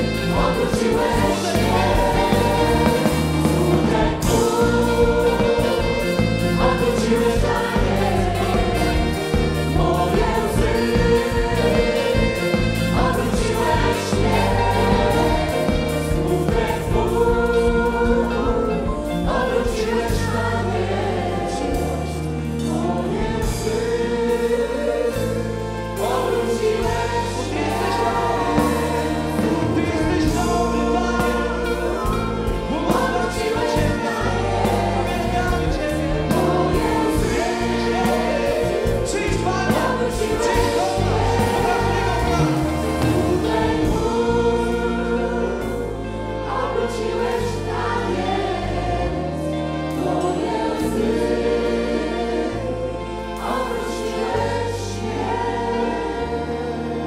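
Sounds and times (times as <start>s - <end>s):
live band with drum beat: 0.0s - 20.5s, 26.8s - 44.2s
vocal group singing in harmony: 0.0s - 57.0s.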